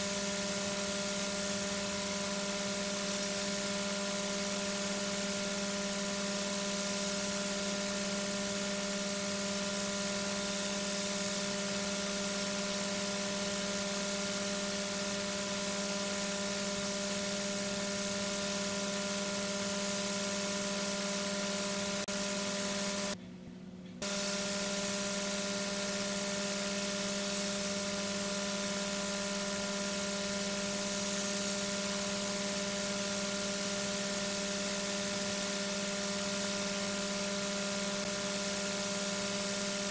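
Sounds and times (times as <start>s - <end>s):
electrical hum: 0.0s - 39.9s
steady hiss: 24.0s - 39.9s.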